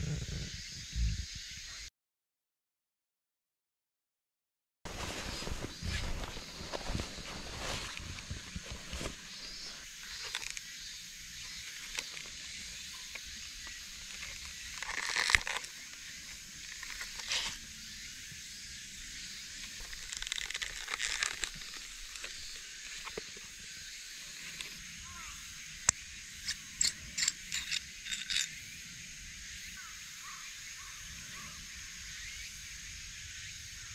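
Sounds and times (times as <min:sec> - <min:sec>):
cloth bag rustling: 0:04.9 - 0:09.8.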